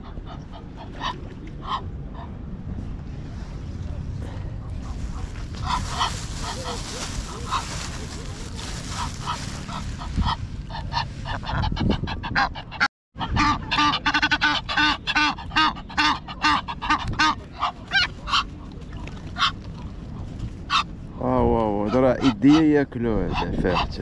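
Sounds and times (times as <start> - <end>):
geese honking: 5.0 - 19.6, 20.7 - 20.9.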